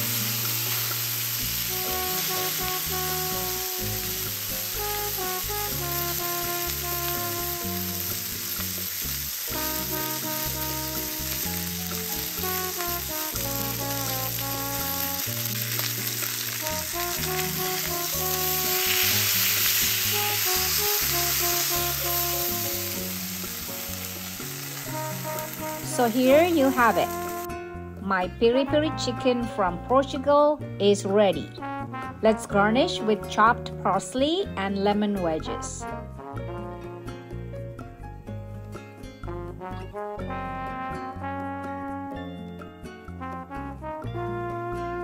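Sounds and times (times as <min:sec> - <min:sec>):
chicken sizzling on grill pan: 0:00.0 - 0:27.5
background music: 0:00.0 - 0:45.0.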